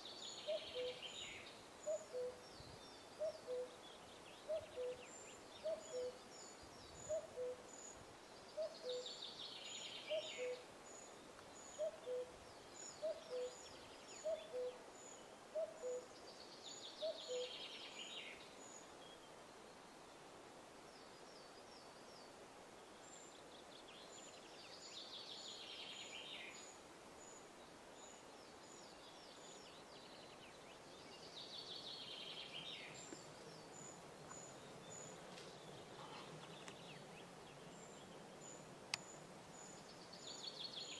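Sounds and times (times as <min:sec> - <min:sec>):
bird ticks and raspy scraping song: 0:30.6 - 0:40.9.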